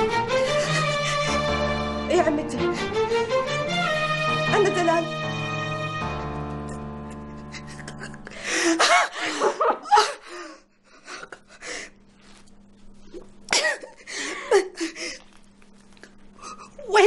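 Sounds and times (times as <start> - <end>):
woman sobbing and wailing: 0.4 - 1.8, 6.7 - 12.0, 13.5 - 15.4.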